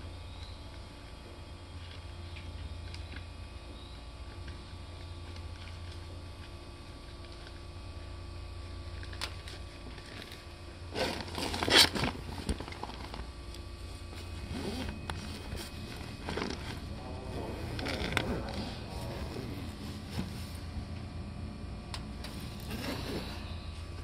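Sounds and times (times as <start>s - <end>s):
electric train interior hum: 12.1s - 24.0s.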